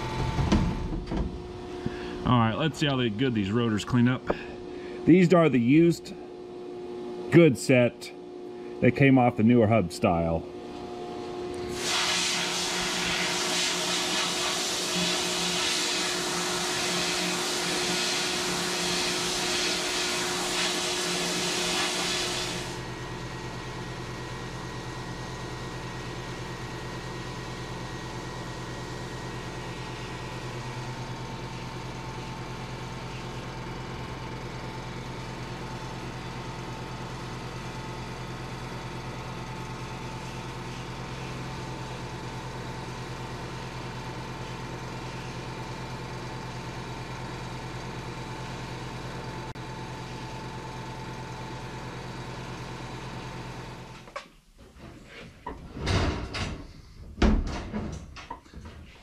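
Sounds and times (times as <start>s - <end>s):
steady motor hum: 0.0s - 54.2s
sandblaster hiss: 11.7s - 22.8s.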